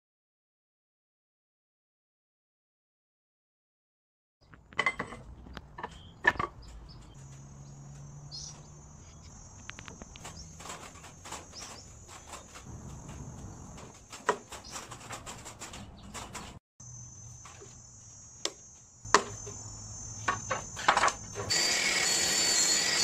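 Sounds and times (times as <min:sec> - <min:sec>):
wooden boards and clamps knocking: 0:04.6 - 0:07.2, 0:10.4 - 0:16.6
high-pitched whine: 0:16.8 - 0:23.0.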